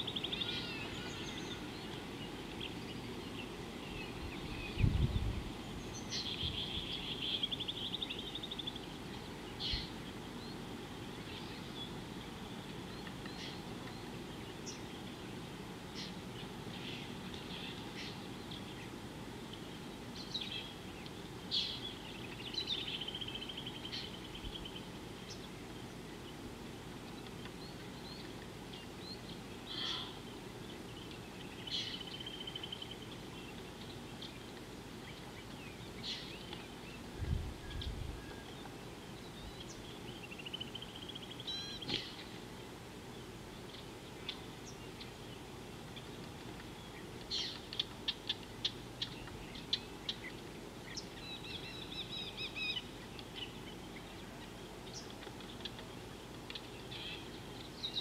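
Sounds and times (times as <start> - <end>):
outdoor background hum: 0.0 - 58.0
small birds chirping: 0.0 - 58.0.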